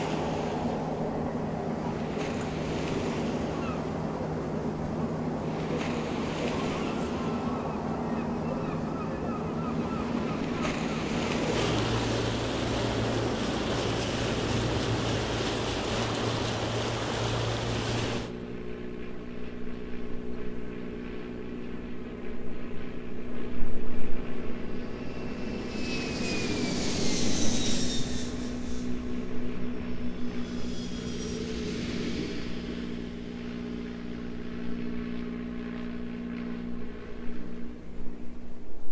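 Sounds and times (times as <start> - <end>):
propeller airliner taking off: 0.0 - 38.6
high engine whine: 0.0 - 38.8
sea: 0.0 - 38.9
wind: 0.0 - 38.9.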